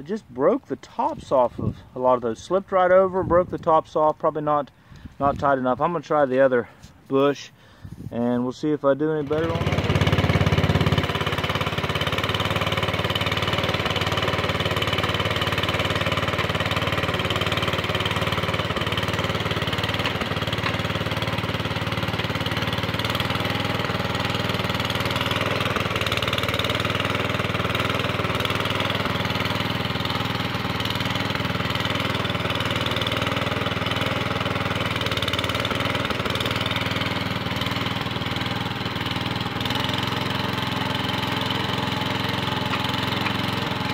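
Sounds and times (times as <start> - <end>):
garden tractor engine running: 0.0 - 43.9.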